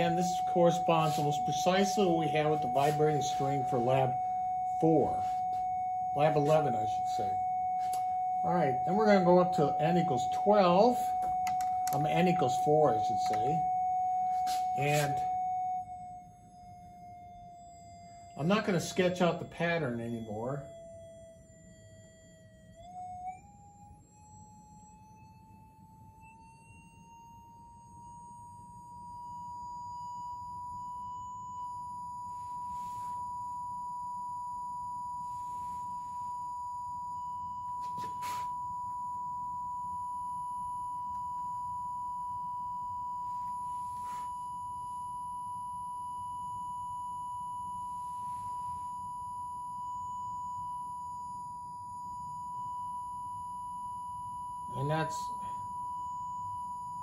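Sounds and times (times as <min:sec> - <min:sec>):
steady sine tone: 0:00.0 - 0:57.0
click: 0:11.4 - 0:12.0.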